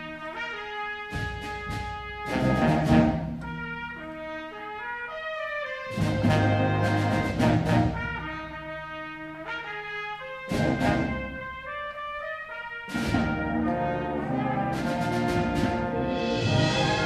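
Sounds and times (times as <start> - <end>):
concert band playing chords: 12.9 - 17.0.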